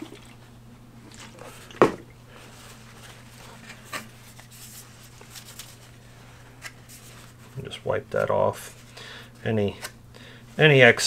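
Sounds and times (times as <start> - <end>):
steady low hum: 0.0 - 11.0
cloth rag rustling: 2.3 - 7.7.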